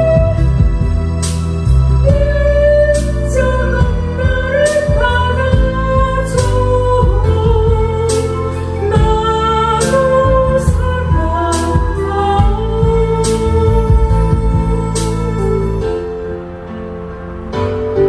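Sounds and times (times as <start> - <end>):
instrumental accompaniment with drums: 0.0 - 16.2
woman singing gospel song: 2.0 - 15.8.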